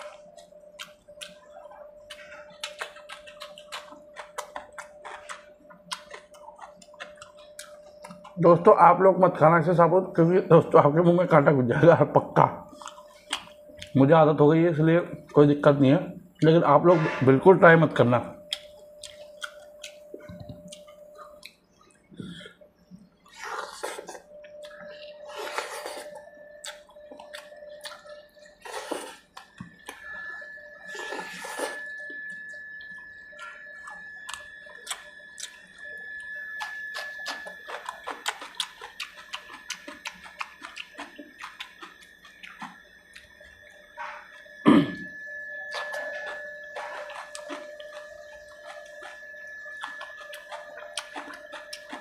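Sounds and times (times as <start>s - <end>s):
lip smacks while chewing: 0.8s - 8.4s.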